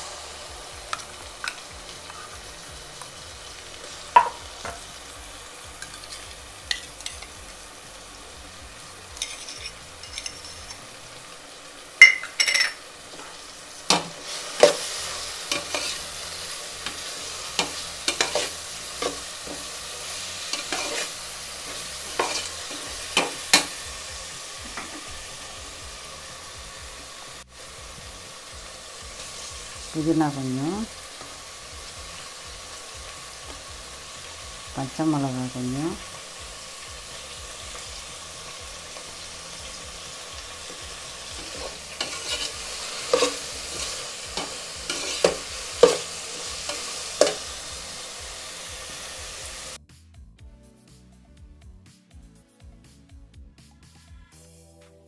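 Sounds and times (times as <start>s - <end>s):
oil sizzling: 0.0s - 49.8s
metal spoon clinking and scraping pot: 5.8s - 7.3s, 9.2s - 10.9s, 12.0s - 16.1s, 16.8s - 23.8s, 41.4s - 47.4s.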